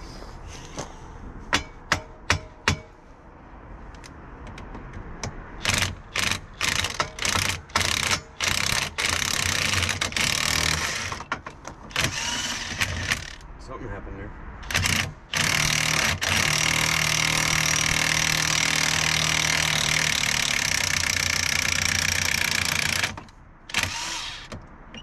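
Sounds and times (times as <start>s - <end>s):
impact wrench rattling: 5.6s - 13.4s.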